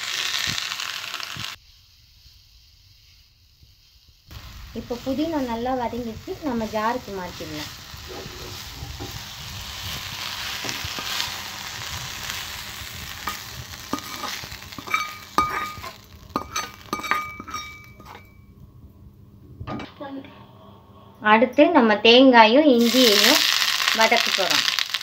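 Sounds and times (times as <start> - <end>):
leaves sizzling in oil: 0.0 - 18.4, 22.7 - 25.0
steel spoon stirring: 10.0 - 18.4
spoon clinking on metal: 14.0 - 18.3.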